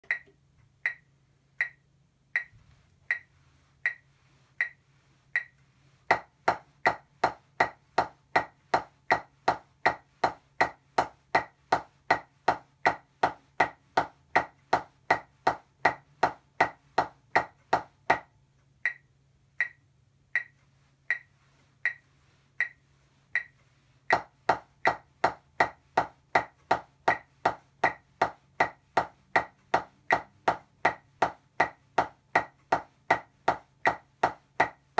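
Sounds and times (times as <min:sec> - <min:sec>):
metronome clicking: 0:00.0 - 0:01.8, 0:02.4 - 0:04.0, 0:04.6 - 0:04.8, 0:05.4 - 0:06.2, 0:18.8 - 0:22.8, 0:23.4 - 0:24.3
drumsticks on practice pad: 0:00.0 - 0:34.9.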